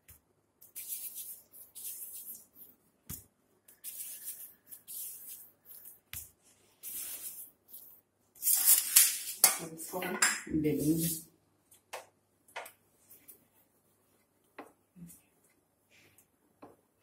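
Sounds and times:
hands rubbing and patting dough: 0.0 - 9.0.

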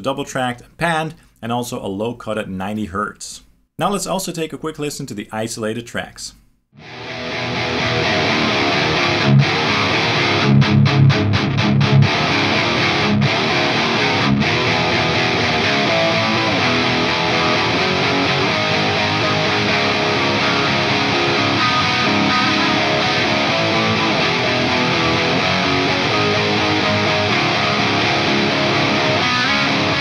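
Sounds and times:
distorted electric guitar riff: 6.8 - 30.0.

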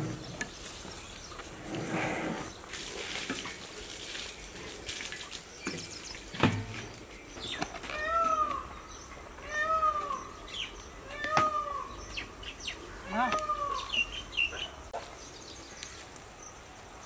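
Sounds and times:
animal crying: 7.8 - 8.7, 9.4 - 10.4, 11.0 - 12.0, 13.0 - 14.0.

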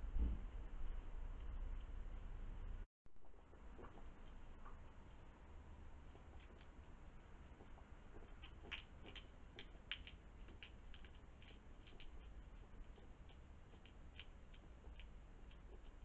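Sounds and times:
low steady hum: 0.0 - 16.0
hedgehog chewing clicks: 3.2 - 16.0.

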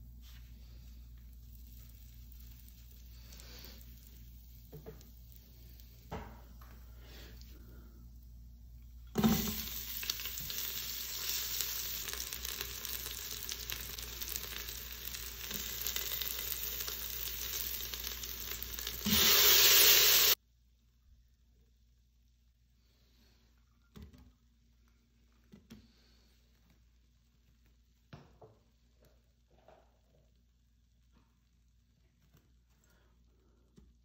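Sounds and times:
food sizzling in hot oil: 1.1 - 6.2, 9.1 - 20.4
loud even hiss: 18.9 - 20.4.

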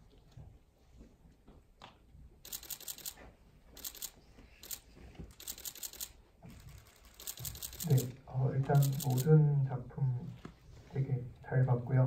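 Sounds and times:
rapid crisp clicking: 2.5 - 3.2, 3.8 - 8.1.

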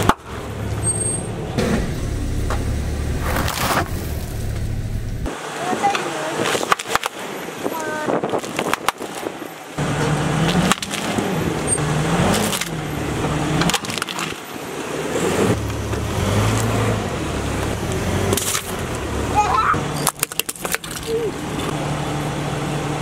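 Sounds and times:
car engine running low: 0.3 - 5.3
tyre crushing brittle items: 8.2 - 9.4, 10.4 - 11.3, 12.2 - 12.8, 13.6 - 14.4, 19.9 - 21.3.

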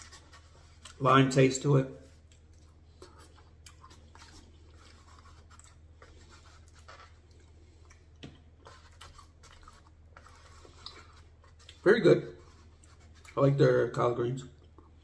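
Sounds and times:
person chewing: 0.0 - 1.0, 2.0 - 11.8, 12.6 - 13.4, 14.5 - 15.0
fork scraping foam container: 0.0 - 1.1, 8.6 - 13.4.

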